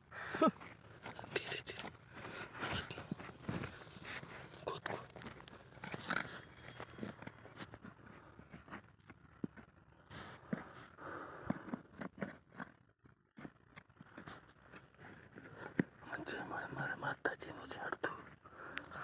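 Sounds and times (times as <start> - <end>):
hand tool digging into soil: 4.6 - 15.9.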